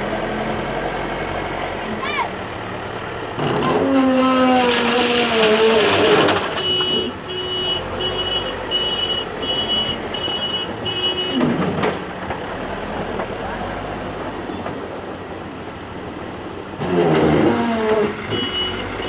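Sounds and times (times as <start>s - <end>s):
backhoe engine and hydraulic whine: 0.0s - 19.0s
reversing alarm beeps: 6.5s - 11.5s, 18.2s - 19.0s.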